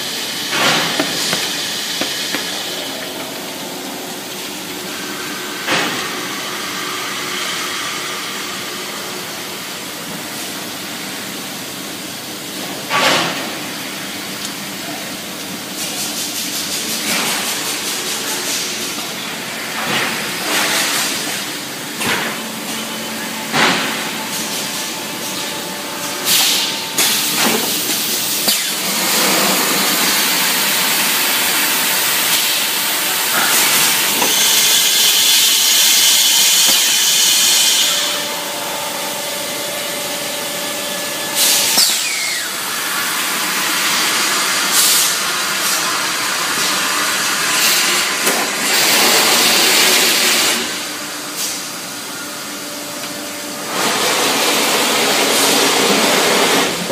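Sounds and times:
machine hum and hiss: 0:00.0 - 0:56.9.

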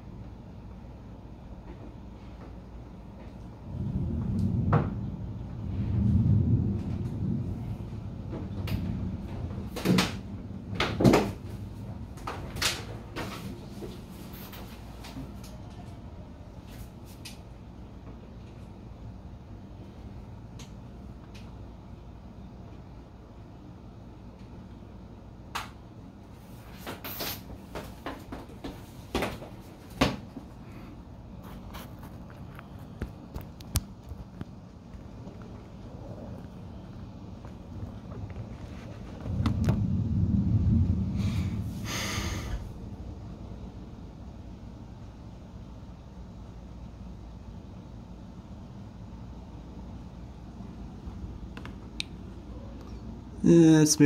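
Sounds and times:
low background rumble: 0:00.0 - 0:26.8, 0:27.5 - 0:54.0
distant thunder rumble: 0:03.5 - 0:14.0, 0:35.0 - 0:45.7.

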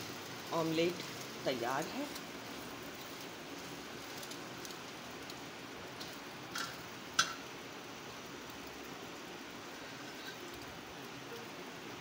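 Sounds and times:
omelette sizzling in oil: 0:00.0 - 0:12.0
metal spatula clicking on pan: 0:06.0 - 0:07.4.

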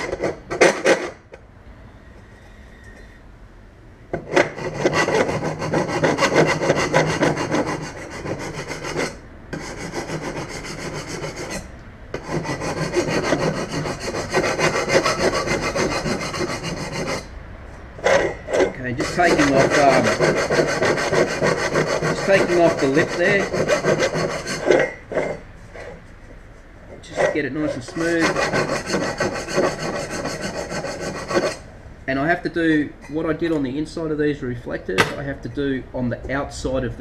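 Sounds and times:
hand file rasping on metal: 0:00.0 - 0:01.2, 0:04.2 - 0:17.3, 0:18.0 - 0:25.9, 0:27.0 - 0:31.6.

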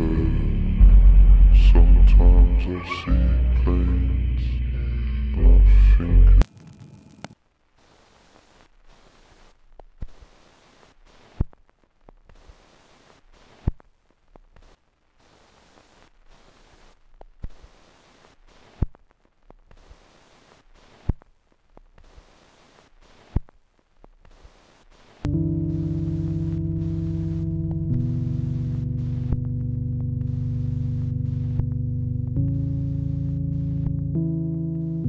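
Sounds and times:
faint hiss: 0:06.4 - 0:31.7.

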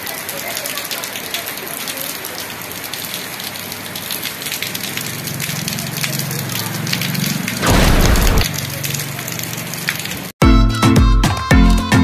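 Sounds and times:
rain falling: 0:00.0 - 0:10.4
loud low thump: 0:07.6 - 0:08.5.

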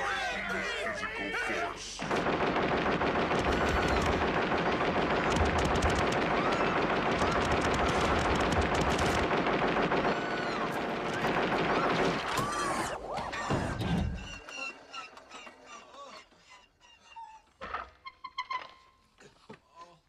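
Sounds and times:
rapid automatic gunfire: 0:02.0 - 0:12.6.

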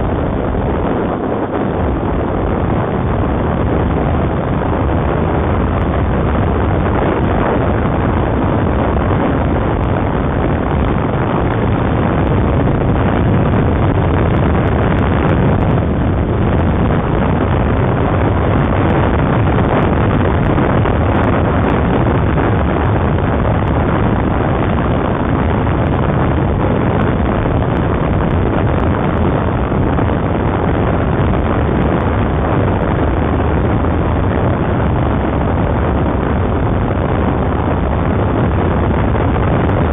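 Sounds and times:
road noise from riding: 0:00.0 - 0:39.9
wind on microphone: 0:00.0 - 0:39.9.

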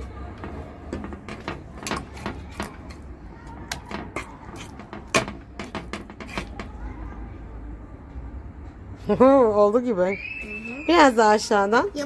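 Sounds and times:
slime being stirred: 0:00.5 - 0:06.8.

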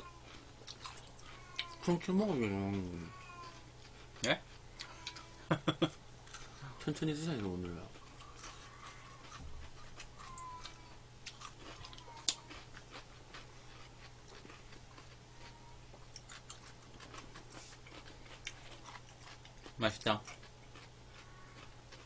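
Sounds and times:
chewing clicks and mouth smacks: 0:00.3 - 0:01.8, 0:08.0 - 0:15.2, 0:16.0 - 0:22.0.

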